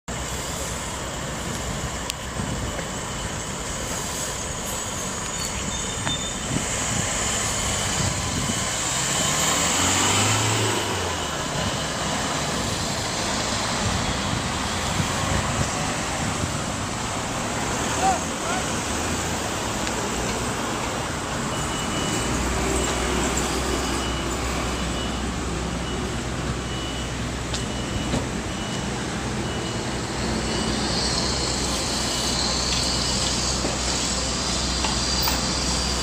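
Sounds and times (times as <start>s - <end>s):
street traffic noise: 0.1s - 36.0s
vehicle passing close: 7.0s - 25.6s.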